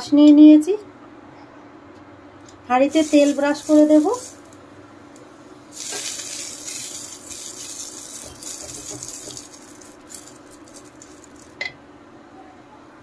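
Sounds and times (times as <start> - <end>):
oil sizzling in hot pot: 2.9 - 4.6, 5.7 - 11.5.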